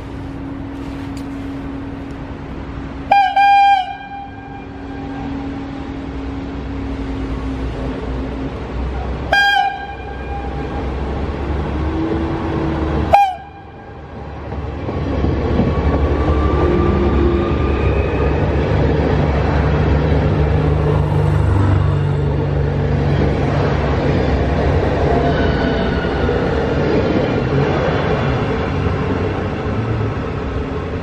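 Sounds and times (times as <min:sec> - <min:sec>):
diesel train engine and wheels: 0:00.0 - 0:31.0
train horn blasts: 0:03.0 - 0:05.7, 0:09.3 - 0:11.0, 0:13.0 - 0:14.2.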